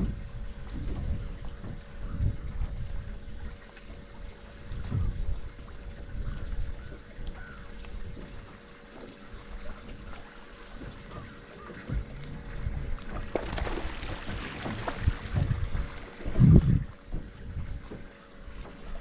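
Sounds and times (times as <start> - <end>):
wind buffeting microphone: 0.0 - 3.6, 4.5 - 8.5, 10.8 - 18.1
faint steady hum: 0.0 - 19.0
water splashing against boat hull: 0.0 - 19.0.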